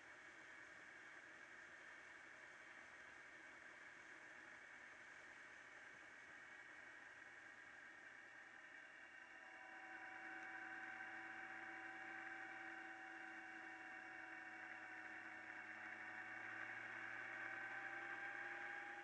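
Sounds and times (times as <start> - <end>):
motorcycle hum and whine: 8.6 - 19.0.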